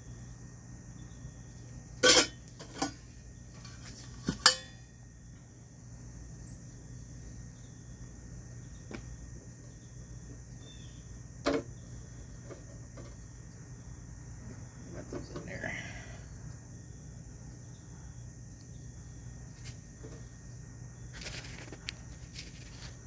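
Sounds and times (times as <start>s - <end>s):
metallic clanks of lid and basket: 2.0s - 3.0s, 4.2s - 4.8s.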